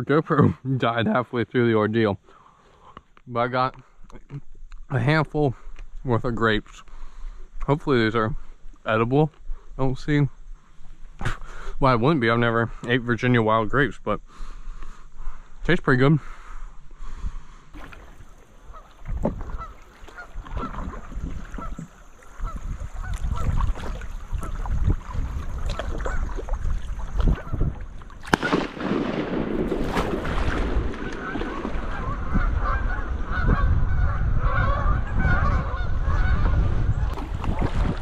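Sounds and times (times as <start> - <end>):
wind: 0.0 - 38.0
water noise: 17.6 - 38.0
waterfowl calling: 17.7 - 29.2, 29.9 - 37.8.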